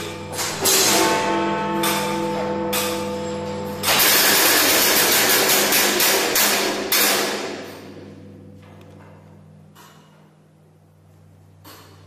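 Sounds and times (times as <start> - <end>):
clock striking mechanism clattering: 0.0 - 7.7.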